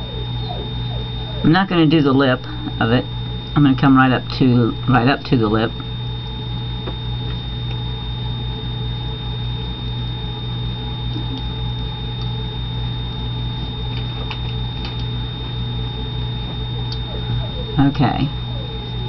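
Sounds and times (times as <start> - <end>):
low electrical hum: 0.0 - 19.0
thin high whine: 0.0 - 19.0.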